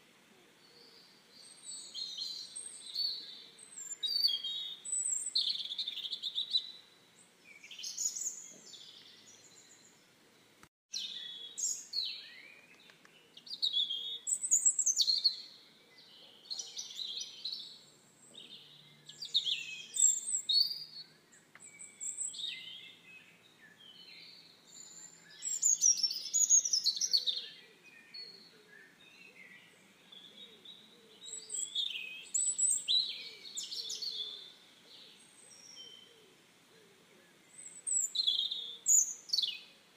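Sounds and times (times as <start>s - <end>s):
songbirds chirping and warbling: 0.0s - 39.9s.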